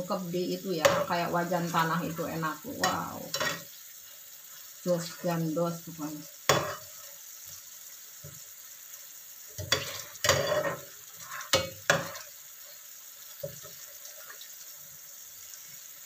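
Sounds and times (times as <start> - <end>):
sauce sizzling: 0.0 - 16.0
metal spatula scraping a pan: 0.8 - 3.7, 6.5 - 7.1, 9.6 - 12.4.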